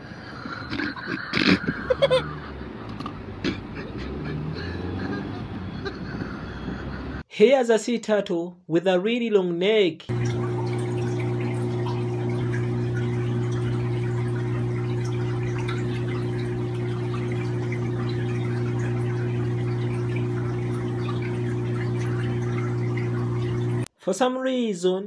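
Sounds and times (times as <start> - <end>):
aquarium pump humming: 10.1 - 23.9
water bubbling and trickling: 10.1 - 23.9.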